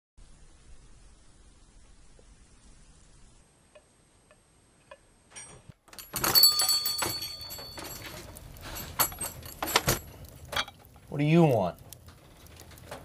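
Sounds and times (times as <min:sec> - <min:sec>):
door bell jangling: 0:05.9 - 0:10.0.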